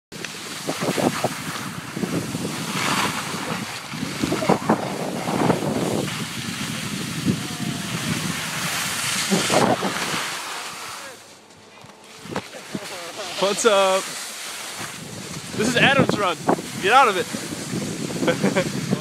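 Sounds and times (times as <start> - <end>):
wind on microphone: 0.2 - 11.0, 14.8 - 19.0
snowboards scraping on snow: 0.2 - 19.0.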